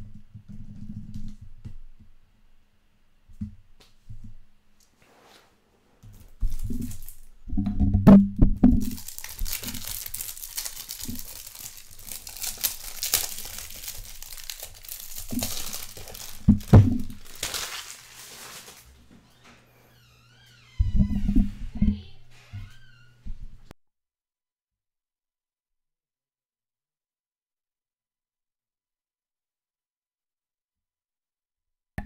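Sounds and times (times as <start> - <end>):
plastic wrap tearing and crinkling: 6.2 - 7.3, 8.7 - 19.0
low handling thumps: 16.4 - 17.2.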